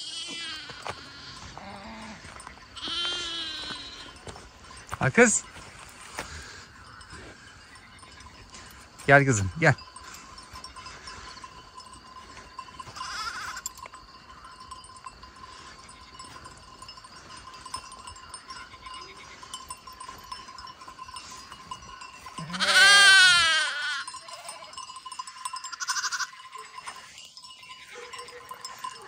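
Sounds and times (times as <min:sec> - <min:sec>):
sheep bleating: 0:00.0 - 0:04.4, 0:12.3 - 0:13.7, 0:22.2 - 0:24.8, 0:25.7 - 0:27.1.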